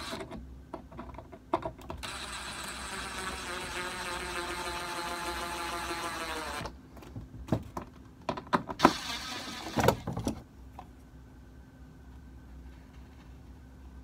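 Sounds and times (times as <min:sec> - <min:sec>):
sharp clicks and knocks: 0:00.1 - 0:02.1
impact driver motor whine: 0:02.0 - 0:06.7, 0:08.8 - 0:10.0.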